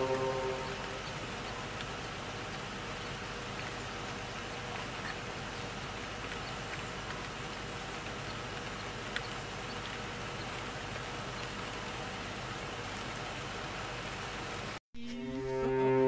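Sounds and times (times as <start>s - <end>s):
background music: 0.0s - 1.1s, 15.0s - 16.0s
faint chirps or ticks: 0.0s - 12.0s
faint insect drone: 0.0s - 14.8s
steady outdoor hiss: 0.0s - 16.0s.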